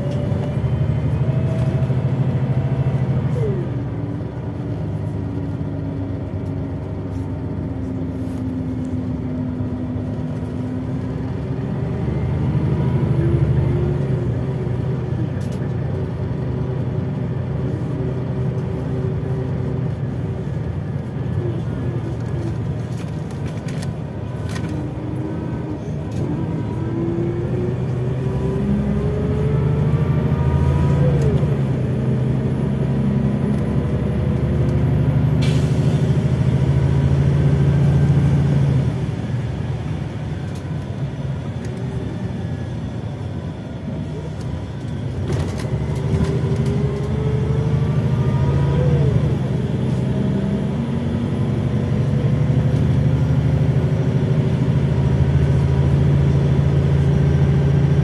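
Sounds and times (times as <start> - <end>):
bus engine drone: 0.0 - 58.0.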